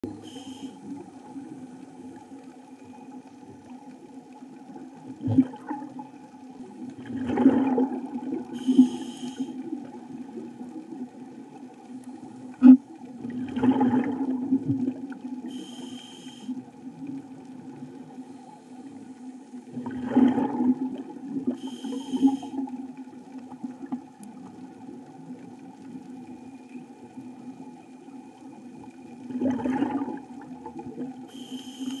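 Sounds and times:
steady low hum: 0.0s - 3.1s
whistling hiss of inhalation: 0.3s - 0.8s, 8.6s - 9.6s, 15.5s - 16.5s, 21.6s - 22.6s, 31.3s - 32.0s
exhaled bubbles rumbling: 3.2s - 11.8s, 12.5s - 15.6s, 19.6s - 31.3s.

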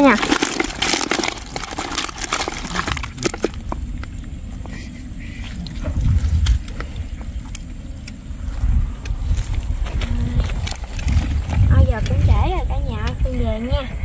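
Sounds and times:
fish flapping in a bucket: 0.0s - 7.7s, 9.2s - 12.4s
low rumble: 0.0s - 14.0s.

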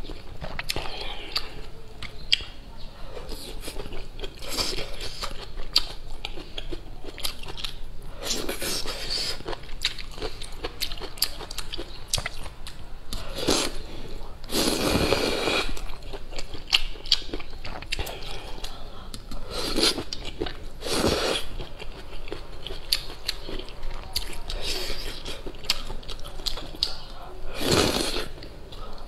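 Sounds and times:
wet chewing and lip-smacking: 8.5s - 13.3s, 21.6s - 27.2s
person slurping noodles: 14.5s - 15.8s, 20.8s - 21.5s, 27.5s - 28.4s.

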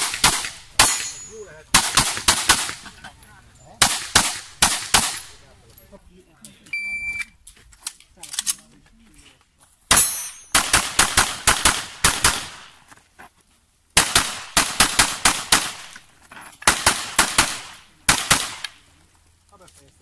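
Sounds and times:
pistol gunfire: 0.0s - 2.8s, 3.8s - 5.3s, 9.9s - 12.7s, 14.0s - 16.0s, 16.7s - 18.8s.

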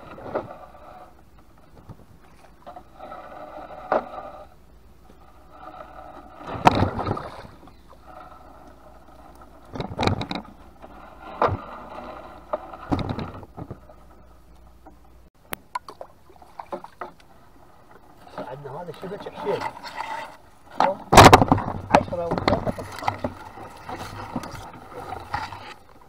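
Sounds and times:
splashing and knocking against hull: 6.4s - 7.6s.

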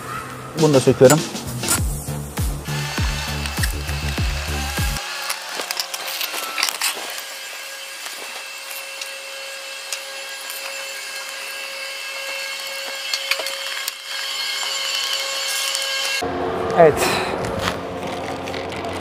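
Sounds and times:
screwdriver clicking and scraping: 2.9s - 16.2s.

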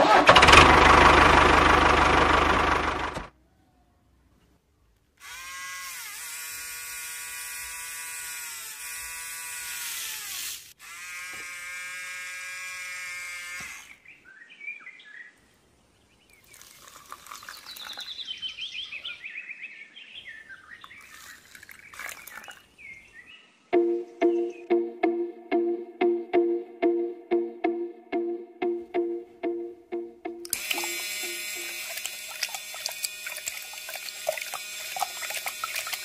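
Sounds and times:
toy motor whining: 5.2s - 14.0s, 30.5s - 36.0s
birds chirping: 13.9s - 25.2s.

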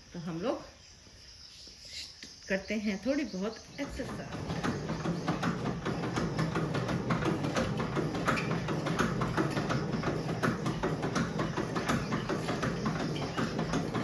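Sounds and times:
pedal arms clicking and knocking: 3.1s - 14.0s
flywheel humming: 3.2s - 14.0s.

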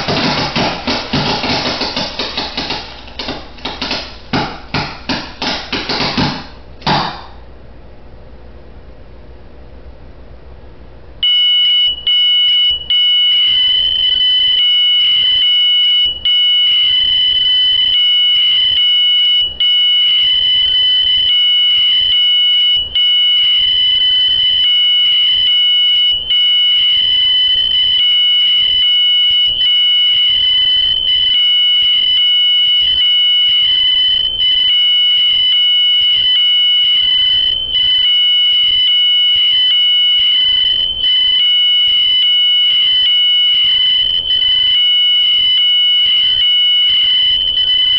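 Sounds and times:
smoke alarm high-pitched tone: 11.2s - 47.9s.

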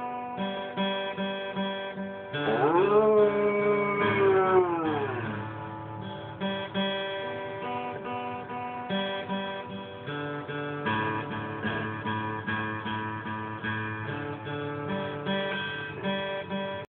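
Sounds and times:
guitar picked and strummed: 0.0s - 16.9s
dog howling: 2.3s - 7.0s.

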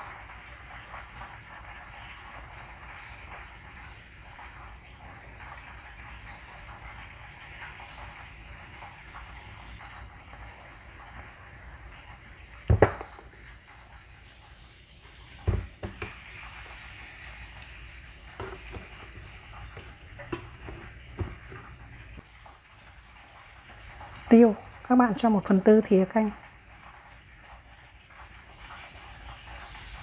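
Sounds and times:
ribs frying in a pan: 0.0s - 30.0s
spoon stirring in ceramic bowl: 18.4s - 21.8s.

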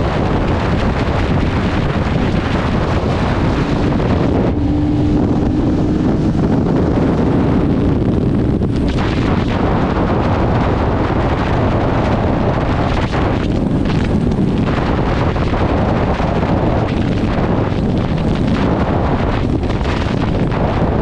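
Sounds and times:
motorcycle engine cruising: 0.0s - 21.0s
wind rushing over microphone: 0.0s - 21.0s.

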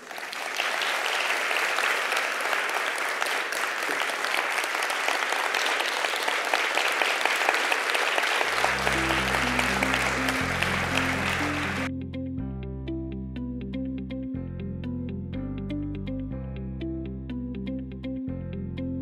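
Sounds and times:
audience applauding: 0.0s - 11.9s
music: 8.2s - 19.0s.

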